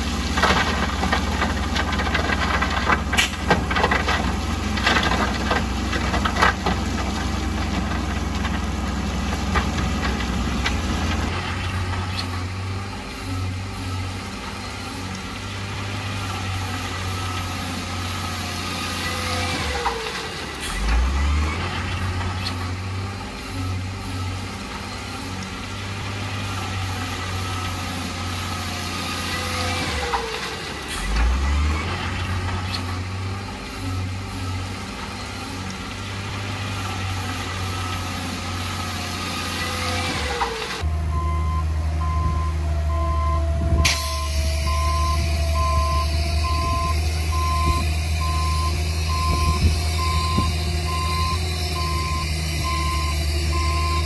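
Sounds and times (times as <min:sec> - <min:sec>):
heavy diesel machines working: 0:00.0 - 0:54.0
reversing alarm beeping: 0:40.8 - 0:54.0.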